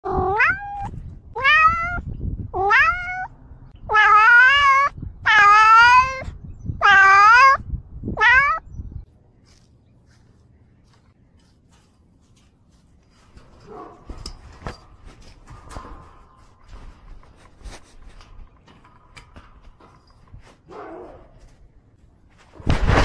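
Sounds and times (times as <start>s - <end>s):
cat meowing loudly: 0.1s - 6.2s, 6.8s - 7.6s, 8.2s - 8.7s.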